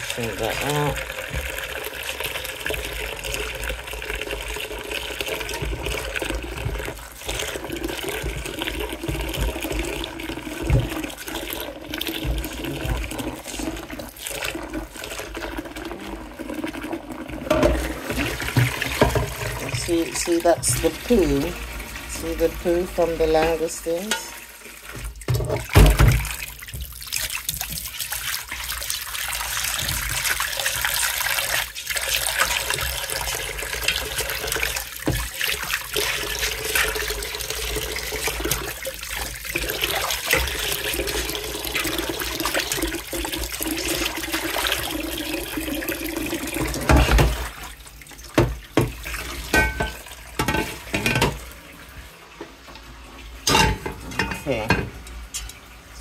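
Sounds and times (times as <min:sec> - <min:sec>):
pot being scrubbed by hand: 0:00.0 - 0:51.5
tap water running into pot: 0:00.0 - 0:56.0
pot knocks and clatters: 0:00.4 - 0:01.9, 0:05.0 - 0:13.9, 0:17.4 - 0:21.5, 0:22.2 - 0:27.9, 0:32.5 - 0:37.0, 0:46.5 - 0:47.6, 0:48.3 - 0:51.5, 0:53.4 - 0:55.6.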